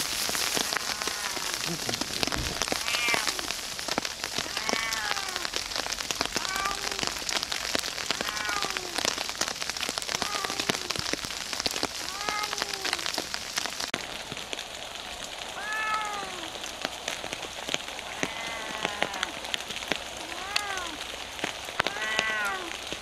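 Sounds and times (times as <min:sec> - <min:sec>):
heavy rain on leaves: 0:00.0 - 0:23.0
cat meowing: 0:00.6 - 0:01.7, 0:02.6 - 0:03.6, 0:04.4 - 0:05.6, 0:06.4 - 0:07.2, 0:08.1 - 0:09.1, 0:10.2 - 0:11.0, 0:12.1 - 0:13.1, 0:15.6 - 0:16.6, 0:18.0 - 0:19.4, 0:20.2 - 0:21.0, 0:21.8 - 0:22.8.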